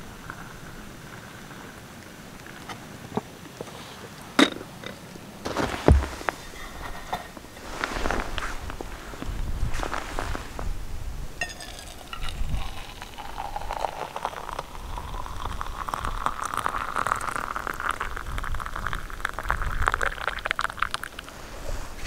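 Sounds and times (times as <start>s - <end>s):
tea pouring into steel mug: 11.4s - 21.3s.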